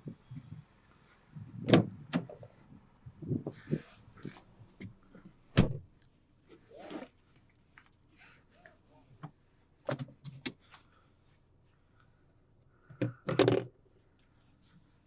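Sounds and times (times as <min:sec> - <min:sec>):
clicks and rustles in cabin: 0:09.2 - 0:10.8.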